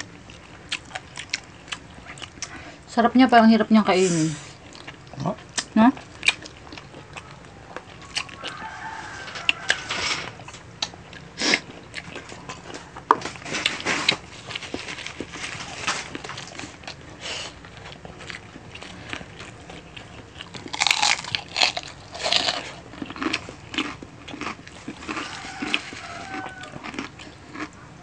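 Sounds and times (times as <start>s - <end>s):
wet smacking and chewing: 0.0s - 2.8s, 4.6s - 28.0s
rooster crowing: 7.1s - 10.5s, 24.9s - 27.3s.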